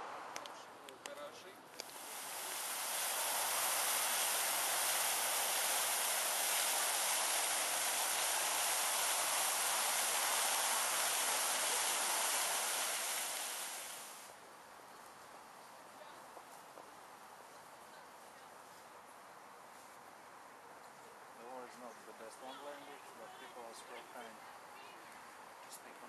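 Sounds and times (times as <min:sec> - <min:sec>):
fountain water rushing and splashing: 0:01.8 - 0:14.3.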